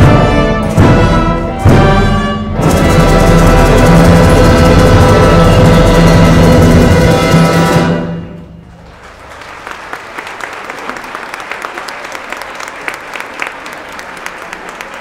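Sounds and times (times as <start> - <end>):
audience applause: 8.7 - 15.0.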